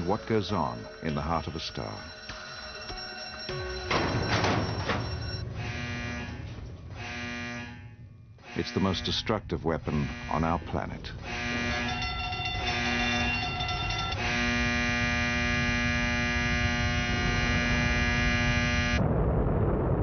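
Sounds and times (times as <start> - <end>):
electronic drone: 0.0 - 19.0
deep rumbling explosion roar: 4.5 - 20.0.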